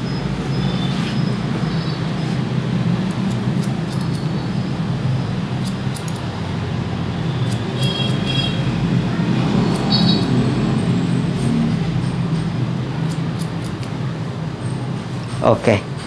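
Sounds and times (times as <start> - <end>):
shears snipping hair: 3.1 - 4.3, 5.5 - 6.3, 7.4 - 8.5, 9.5 - 10.4, 13.0 - 14.0.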